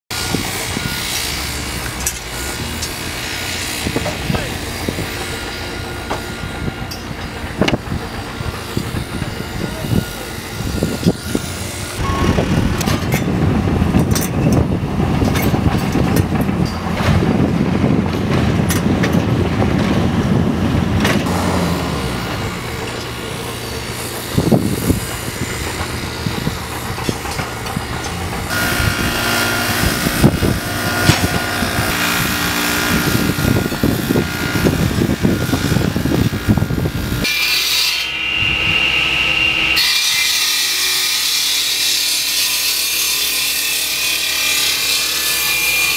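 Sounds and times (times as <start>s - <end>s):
compaction wheel packing soil: 0.1s - 37.3s
excavator engine under load: 0.2s - 37.3s
leaf blower running: 21.2s - 27.0s, 27.6s - 35.3s.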